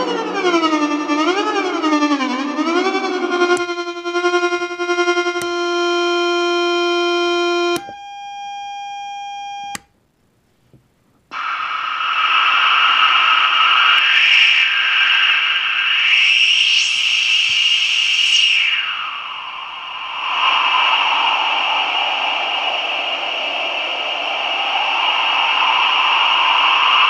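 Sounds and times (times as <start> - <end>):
buzzy warbling synth tone: 0.0 - 7.9
sharp switching clicks: 7.7 - 8.0
steady noise hiss: 9.8 - 14.0.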